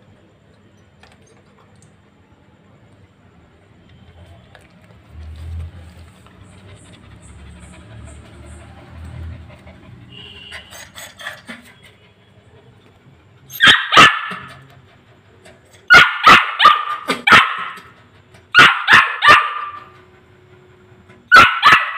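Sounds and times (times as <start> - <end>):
puppy barking: 13.5 - 14.7, 15.9 - 20.0, 21.3 - 21.9.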